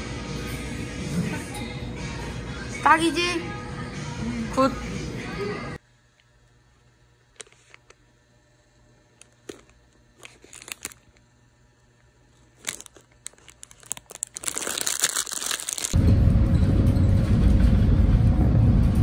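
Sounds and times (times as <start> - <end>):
crinkling and rustling: 7.3 - 8.0, 9.1 - 11.3, 11.9 - 16.0
vehicle rumble: 16.0 - 19.0.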